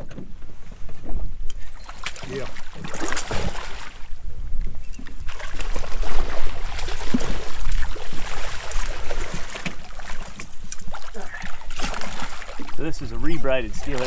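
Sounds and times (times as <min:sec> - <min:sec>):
fish thrashing water splashing: 0:01.7 - 0:04.1, 0:05.2 - 0:14.0.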